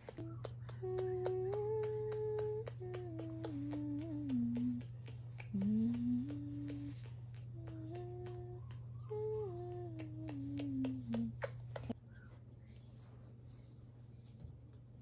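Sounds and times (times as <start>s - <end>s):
woman humming a lullaby: 0.0s - 12.0s.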